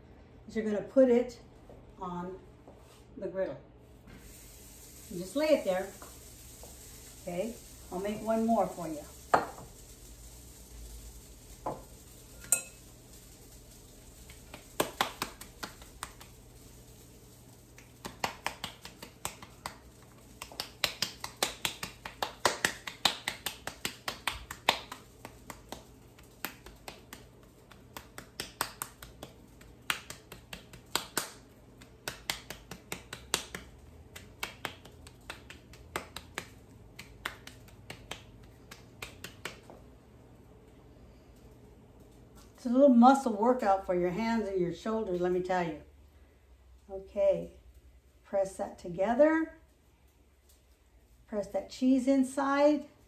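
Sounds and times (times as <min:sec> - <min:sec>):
ringing clink: 0:12.4 - 0:12.8
hands slapping dough: 0:14.3 - 0:16.4, 0:17.7 - 0:39.8.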